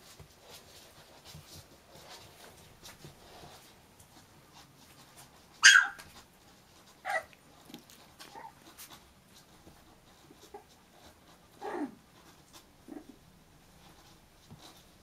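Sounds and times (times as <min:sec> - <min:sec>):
puppy yelping: 0:05.6 - 0:06.2, 0:07.0 - 0:08.7.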